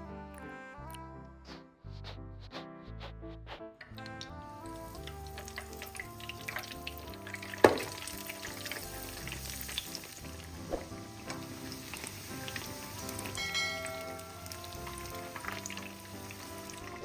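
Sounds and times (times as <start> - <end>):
food sizzling in hot oil: 4.2 - 17.0.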